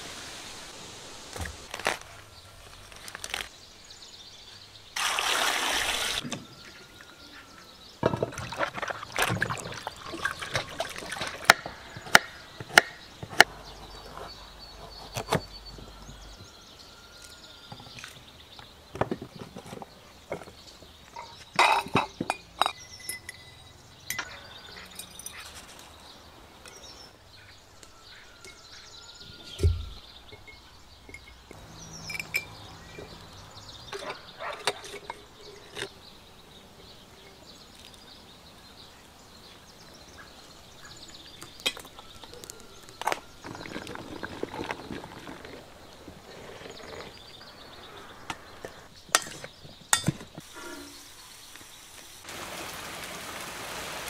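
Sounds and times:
birds chirping: 0:01.4 - 0:52.3
glass jars clinking: 0:21.2 - 0:25.5, 0:30.3 - 0:33.2, 0:33.9 - 0:35.9.

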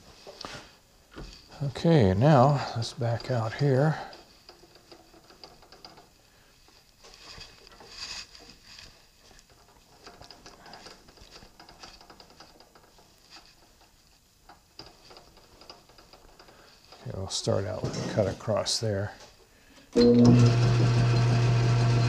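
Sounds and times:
clicking and rattling of lathe parts: 0:03.1 - 0:06.2, 0:07.0 - 0:17.0.

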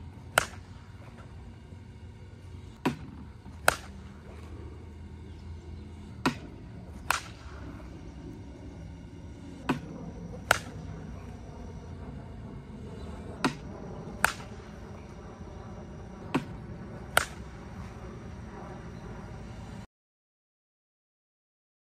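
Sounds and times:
bat cracking ball: 0:00.3 - 0:01.6, 0:02.8 - 0:04.6, 0:06.1 - 0:07.9, 0:09.6 - 0:11.4, 0:13.4 - 0:15.2, 0:16.2 - 0:18.5.

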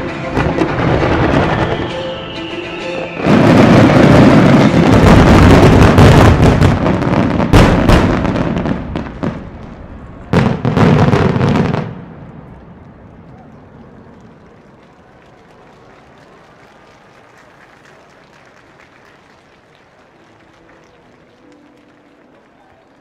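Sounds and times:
sharp fireworks reports: 0:00.0 - 0:12.6
fireworks bursting: 0:00.0 - 0:13.2.

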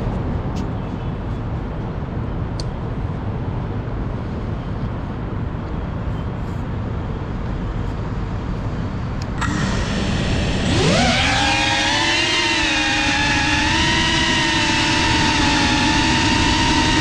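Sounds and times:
low outdoor rumble: 0:00.0 - 0:17.0
quadcopter motors whining: 0:09.2 - 0:17.0.

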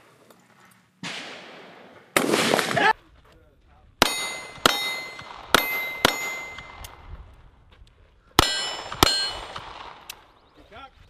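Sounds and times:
pistol shots: 0:01.0 - 0:02.9, 0:04.0 - 0:07.0, 0:08.4 - 0:10.3
metallic ringing of steel plate: 0:04.0 - 0:06.8, 0:08.4 - 0:09.5.

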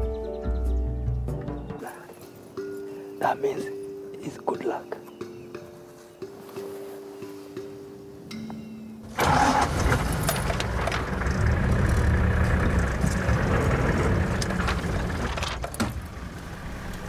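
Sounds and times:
vehicle engine starting and running: 0:09.1 - 0:17.0.

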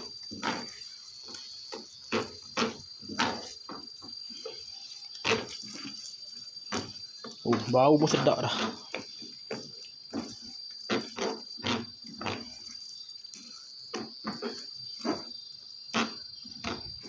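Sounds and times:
spatula scraping pan: 0:00.0 - 0:03.6.

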